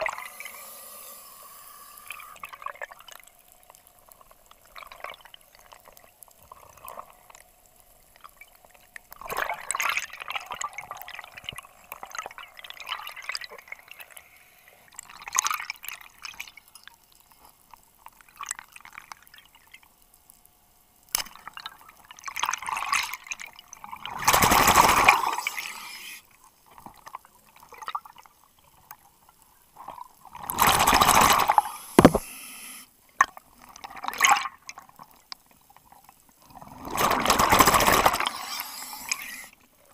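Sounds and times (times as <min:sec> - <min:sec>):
scuba regulator breathing: 0:00.2 - 0:02.4
exhaust bubbles gurgling: 0:22.5 - 0:25.6, 0:30.3 - 0:32.2, 0:36.5 - 0:38.4.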